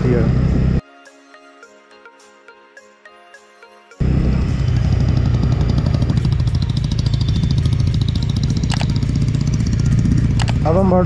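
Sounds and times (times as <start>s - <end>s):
motorcycle engine running: 0.0s - 0.8s, 4.0s - 11.0s
sharp click: 8.6s - 9.0s, 10.3s - 10.6s.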